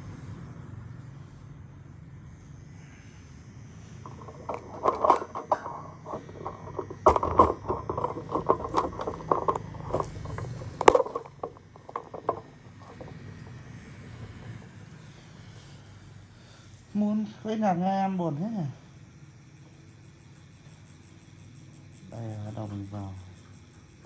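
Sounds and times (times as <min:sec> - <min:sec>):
clicks clatter and scrapes: 0:04.0 - 0:13.5.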